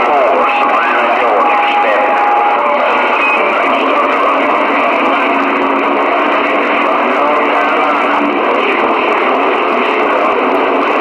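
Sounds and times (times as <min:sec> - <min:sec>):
radio static: 0:00.0 - 0:11.0.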